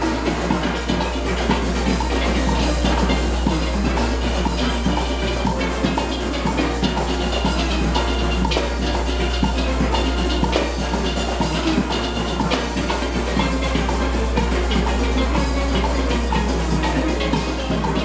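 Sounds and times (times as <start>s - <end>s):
drums: 0.0s - 18.0s
steelpans playing calypso: 0.0s - 18.0s.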